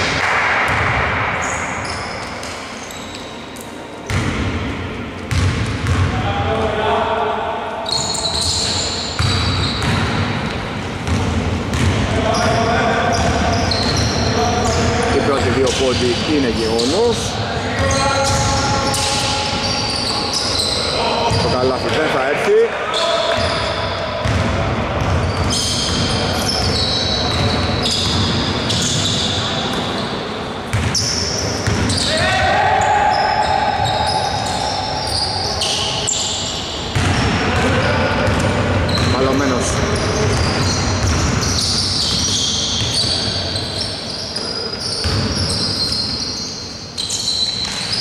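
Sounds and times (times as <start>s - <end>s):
shoes squeaking on court floor: 1.4s - 4.4s, 5.1s - 6.2s, 7.8s - 22.2s, 22.9s - 48.0s
basketball bouncing: 4.1s - 4.6s, 5.3s - 6.2s, 9.2s - 12.1s, 24.2s - 30.0s, 30.7s - 32.2s, 36.9s - 39.4s, 40.2s - 43.2s, 45.0s - 45.6s.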